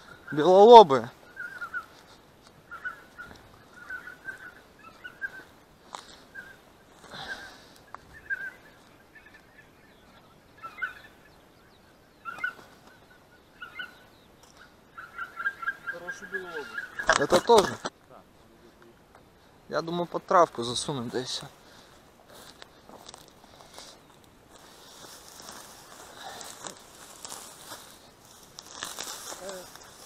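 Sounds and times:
geese yelping: 0:00.0 - 0:17.9.

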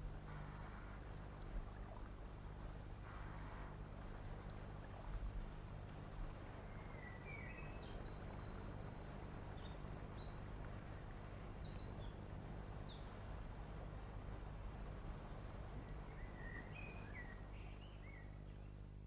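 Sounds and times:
low hum and hiss: 0:00.0 - 0:19.0
songbird chirping and trilling: 0:06.8 - 0:13.1, 0:16.0 - 0:18.8.

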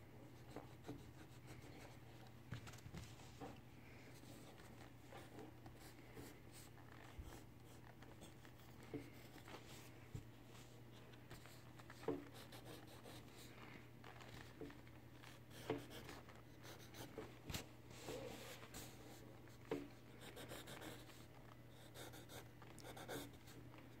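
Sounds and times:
pencil scratching on paper: 0:12.3 - 0:13.5, 0:15.3 - 0:17.1, 0:20.2 - 0:21.1, 0:21.8 - 0:23.5.

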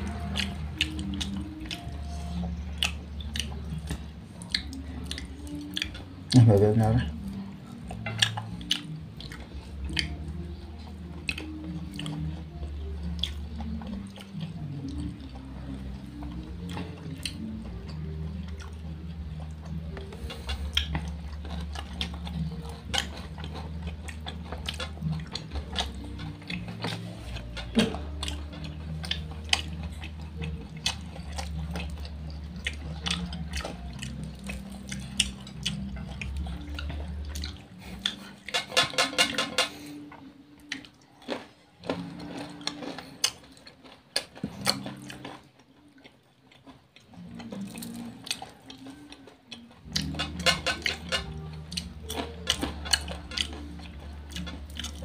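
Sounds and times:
chewing and mouth sounds: 0:00.0 - 0:55.0
bones knocking on plates: 0:38.5 - 0:39.8.

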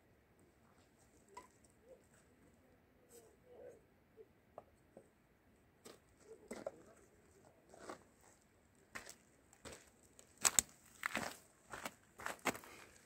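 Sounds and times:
footsteps on gravel: 0:07.7 - 0:13.0.

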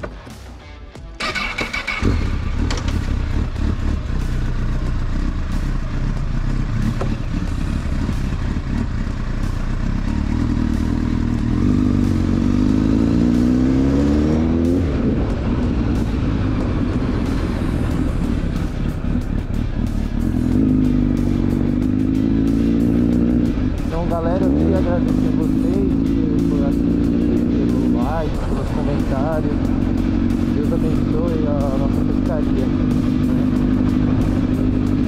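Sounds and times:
motorcycle engine starting and revving: 0:01.1 - 0:35.0.

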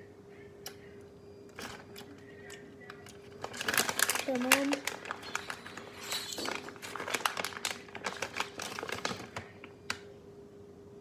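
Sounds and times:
faint hum: 0:00.0 - 0:11.0
rustling and crinkling handling: 0:01.6 - 0:10.1.

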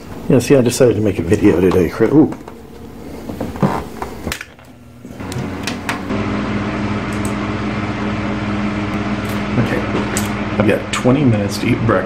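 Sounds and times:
low machine hum: 0:00.0 - 0:12.0.

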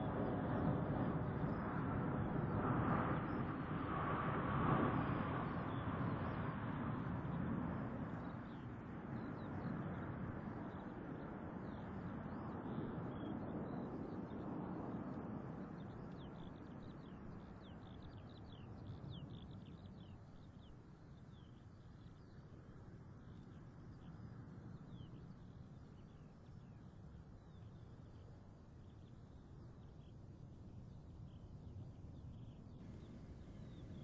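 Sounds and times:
small birds chirping: 0:31.3 - 0:34.0
jet airliner flying away: 0:32.8 - 0:34.0.

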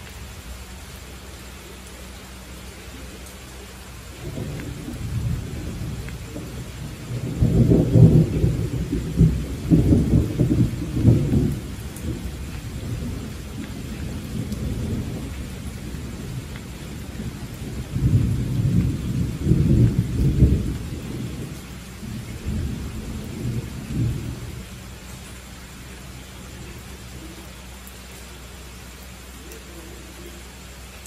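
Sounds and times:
steady rain: 0:00.0 - 0:31.0
rolling thunder: 0:04.1 - 0:24.9.

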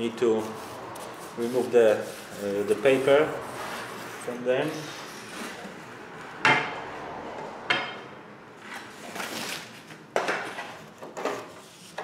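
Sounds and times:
cardboard scraping and rustling: 0:08.6 - 0:12.0.

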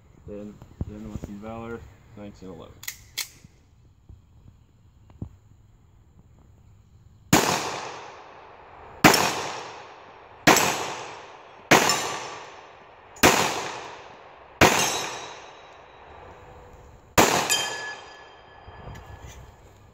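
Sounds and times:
pistol shots echoing: 0:07.3 - 0:16.1, 0:17.2 - 0:18.6
bullet hitting steel plate: 0:11.7 - 0:12.3, 0:14.6 - 0:15.8, 0:17.2 - 0:18.5.

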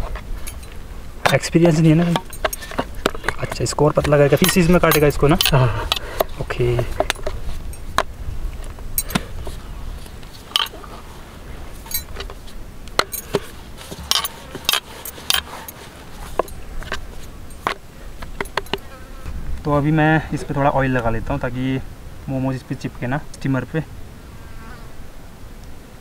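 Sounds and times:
metal canister clinking on wooden board: 0:00.4 - 0:08.1, 0:09.0 - 0:09.3, 0:10.5 - 0:10.9, 0:11.8 - 0:12.4, 0:13.0 - 0:18.9.

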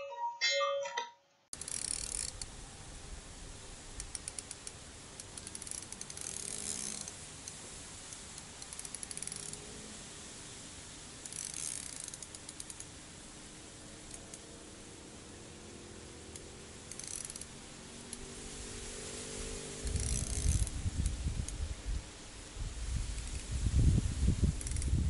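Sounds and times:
fishing reel ratcheting: 0:01.6 - 0:02.5, 0:04.0 - 0:07.6, 0:08.3 - 0:09.6, 0:11.2 - 0:13.0, 0:14.0 - 0:14.5, 0:16.3 - 0:18.3, 0:19.8 - 0:21.6, 0:23.2 - 0:23.5, 0:24.6 - 0:25.0.

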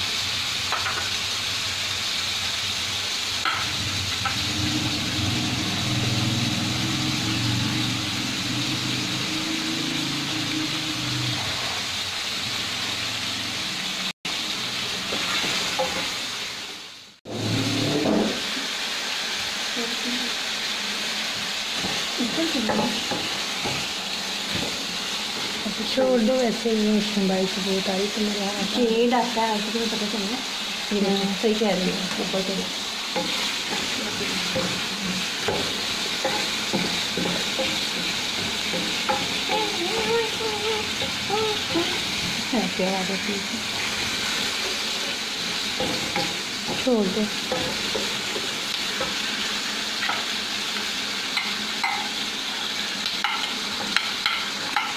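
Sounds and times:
onions sizzling in hot oil: 0:00.0 - 0:54.9
low motor hum: 0:03.7 - 0:14.1.

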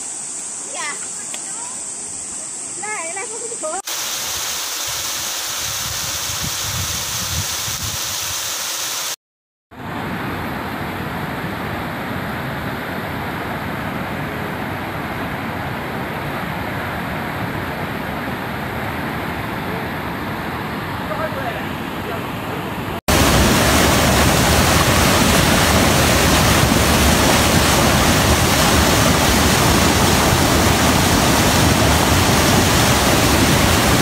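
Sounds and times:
rain: 0:02.8 - 0:09.2, 0:23.1 - 0:34.0
fast river rushing: 0:09.8 - 0:34.0
running water: 0:23.1 - 0:34.0.

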